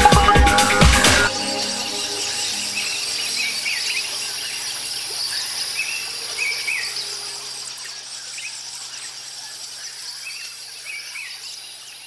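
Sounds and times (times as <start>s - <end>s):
insect hiss: 2.4s - 12.0s.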